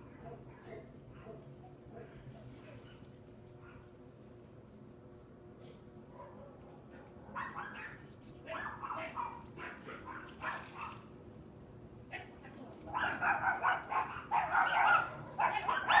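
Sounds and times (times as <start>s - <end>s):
dogs barking: 0.0s - 2.3s, 6.1s - 11.1s, 12.1s - 16.0s.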